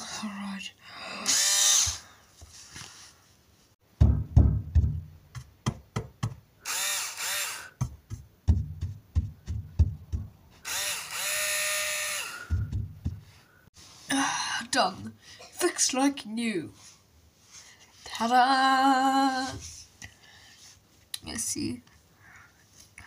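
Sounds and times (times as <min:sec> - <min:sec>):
drill whirring: 0:01.3 - 0:02.0, 0:06.6 - 0:07.8, 0:10.6 - 0:12.6
knocks and thumps: 0:03.8 - 0:06.5, 0:07.7 - 0:10.6, 0:12.4 - 0:13.4.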